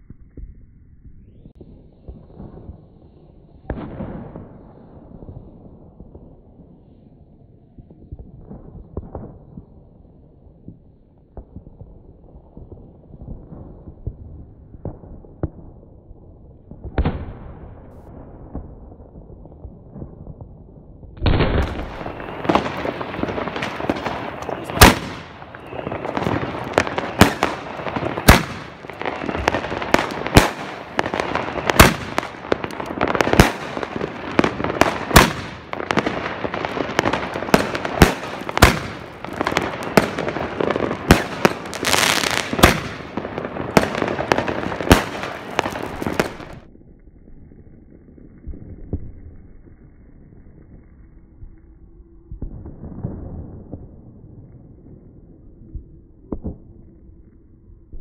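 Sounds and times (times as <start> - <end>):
fireworks crackling: 10.6 - 46.7
loud sharp firework bangs: 21.2 - 46.7.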